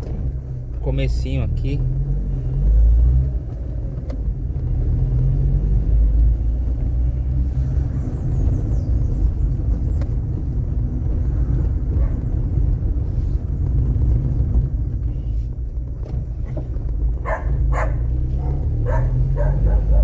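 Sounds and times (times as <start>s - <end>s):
tyres and engine rumbling: 0.0s - 20.0s
dog barking: 17.2s - 20.0s.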